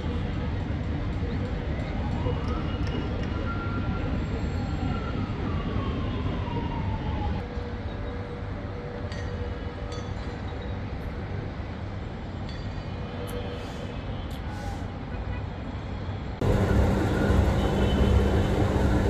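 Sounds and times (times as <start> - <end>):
faint steady hum: 16.4 - 19.0
traffic rumble: 16.4 - 19.0.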